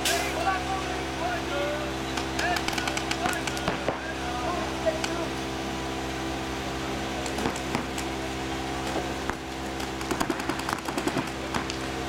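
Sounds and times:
paintball markers firing: 0:02.2 - 0:03.8, 0:09.8 - 0:11.8.

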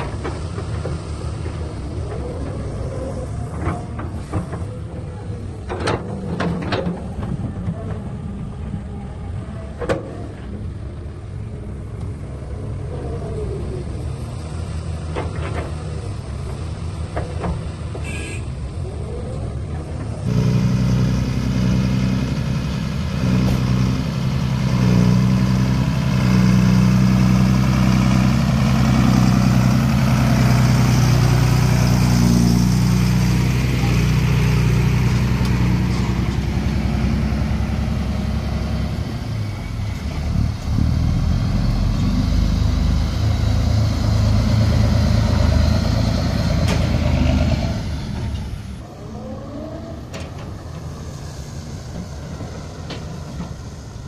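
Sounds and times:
diesel truck engine running: 0:18.6 - 0:54.0.

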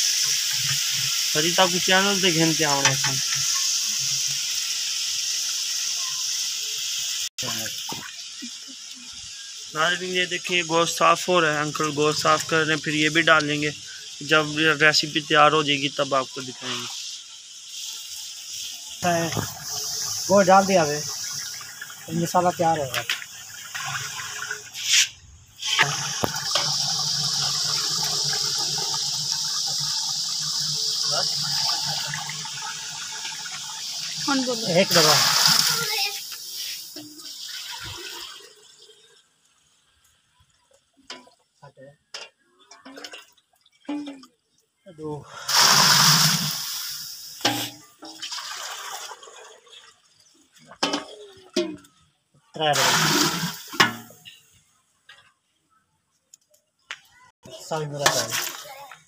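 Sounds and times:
food sizzling in a pot: 0:00.0 - 0:42.9, 0:45.0 - 0:49.2, 0:50.1 - 0:52.0, 0:52.6 - 0:54.6, 0:57.0 - 0:59.0
water splashing between steel vessels: 0:18.7 - 0:39.0, 0:45.3 - 0:52.0, 0:52.6 - 0:54.4, 0:57.7 - 0:59.0.

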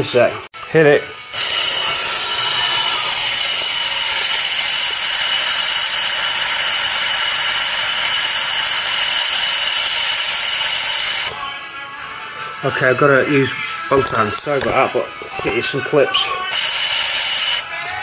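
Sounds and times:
spray gun hissing: 0:01.4 - 0:11.3, 0:16.5 - 0:17.6.

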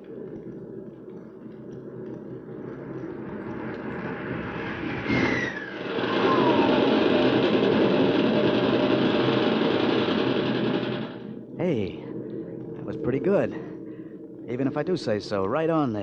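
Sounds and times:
aircraft engine roar: 0:00.0 - 0:16.0
falling whistle: 0:04.8 - 0:08.5.

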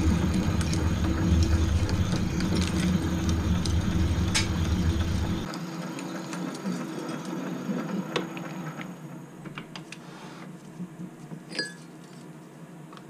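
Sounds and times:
lathe spinning down: 0:00.0 - 0:09.3
lathe motor hum: 0:00.0 - 0:09.4.

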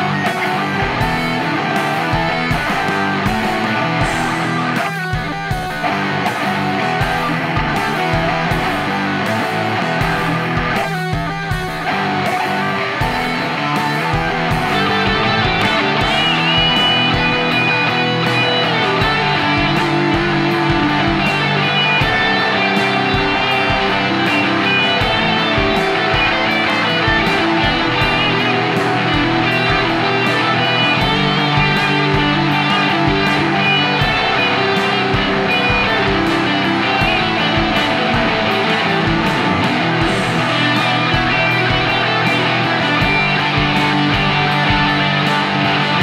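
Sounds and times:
guitar-led music with steady beat: 0:00.0 - 0:46.0.

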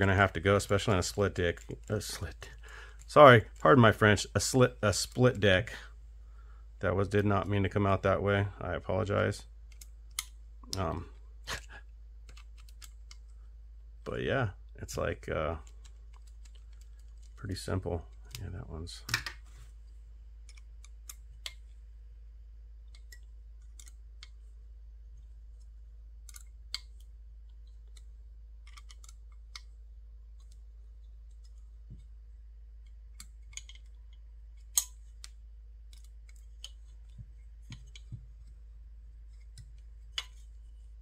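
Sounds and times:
steady low hum: 0:00.0 - 0:41.0
small parts clicking and tapping: 0:00.2 - 0:03.8, 0:09.6 - 0:11.2, 0:12.2 - 0:13.4, 0:15.5 - 0:21.8, 0:22.8 - 0:41.0.

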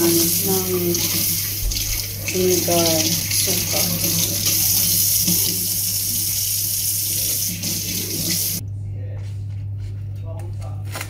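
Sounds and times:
tap water splashing: 0:00.0 - 0:06.4.

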